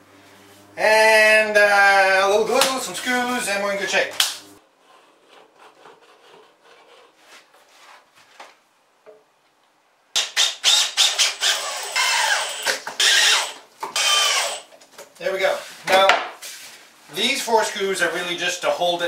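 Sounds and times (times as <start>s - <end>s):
cordless drill driving screws: 10.2s - 14.7s.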